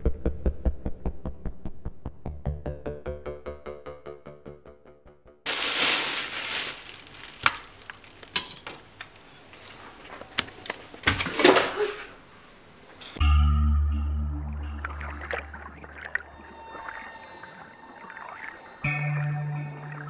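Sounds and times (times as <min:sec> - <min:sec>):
music: 0:00.0 - 0:05.5, 0:13.2 - 0:20.0
low musical drone: 0:13.2 - 0:20.0.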